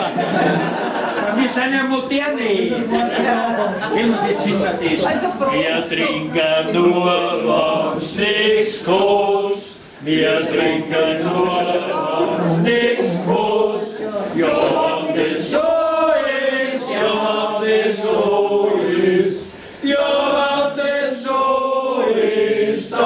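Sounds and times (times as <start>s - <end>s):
group singing in chorus: 5.5s - 23.0s.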